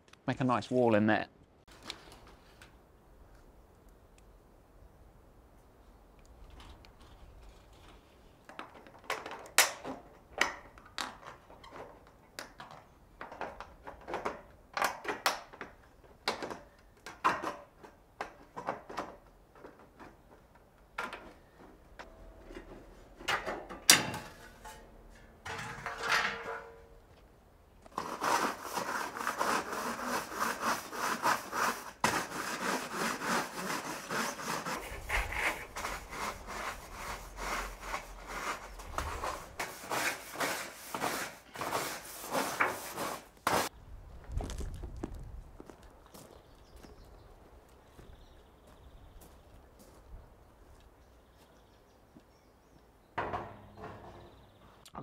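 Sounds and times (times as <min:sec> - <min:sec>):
broom scrubbing metal sheets: 0:27.9 - 0:43.7.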